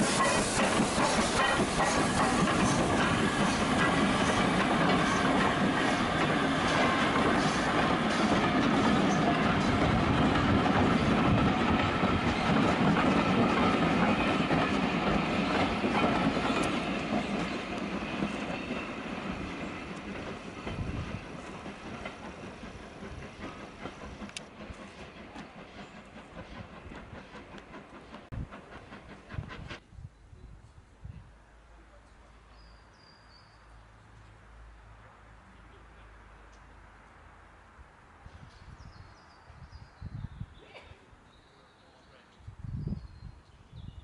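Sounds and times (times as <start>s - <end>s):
train rolling past: 0.0s - 31.0s.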